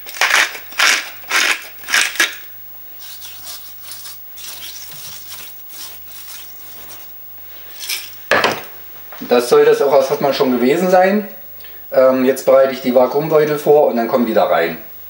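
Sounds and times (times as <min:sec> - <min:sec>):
salt mill grinding: 0:00.0 - 0:07.1
salt rubbed into steak by hand: 0:03.0 - 0:07.9.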